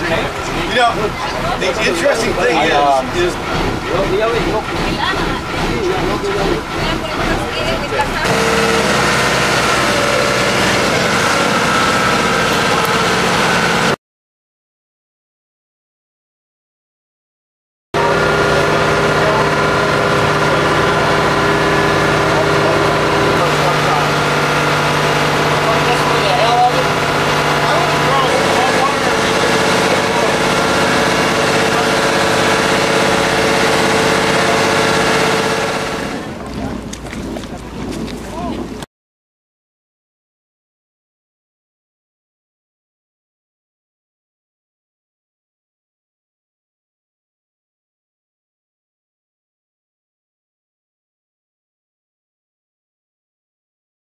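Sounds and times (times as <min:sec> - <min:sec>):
boat engine running: 0:00.0 - 0:14.0, 0:18.0 - 0:38.8.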